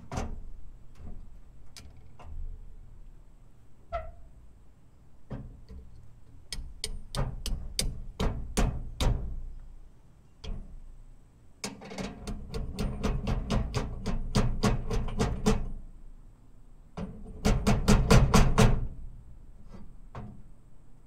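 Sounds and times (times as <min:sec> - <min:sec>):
metal taps on seal driver: 0:06.5 - 0:09.2.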